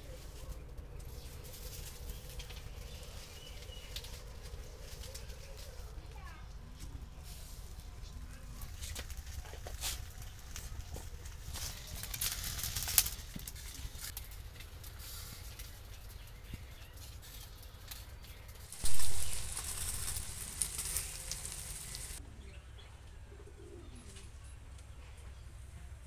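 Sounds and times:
loud hissing rush: 18.7 - 22.2
dove cooing: 23.2 - 24.4.

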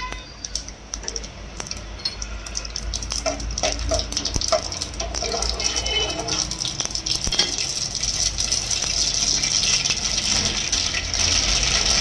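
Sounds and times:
seeds popping in hot oil: 0.0 - 12.0
spoon scraping pot: 3.3 - 6.6.

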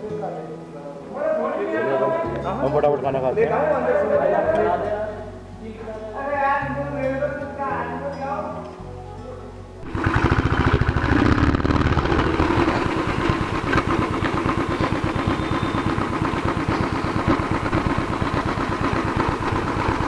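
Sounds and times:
motorcycle engine running: 9.8 - 20.0.

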